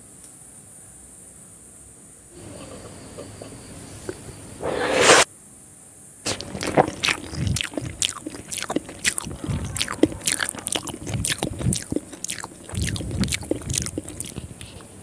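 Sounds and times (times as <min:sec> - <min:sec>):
wet lip smacks and chewing: 0:06.3 - 0:15.0.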